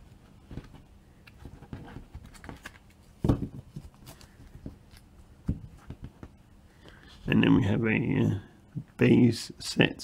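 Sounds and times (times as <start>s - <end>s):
trading cards rustling and clicking: 0.6s - 5.1s.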